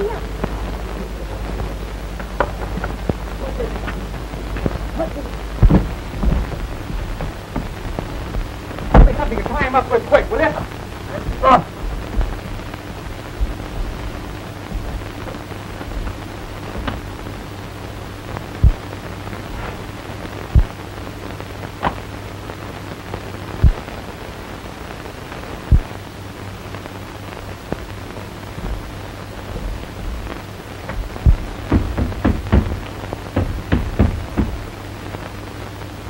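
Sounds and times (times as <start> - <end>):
dull low thumps: 0.0 - 20.8, 27.8 - 34.8
film soundtrack hiss: 0.0 - 36.0
steady low hum: 0.0 - 36.0.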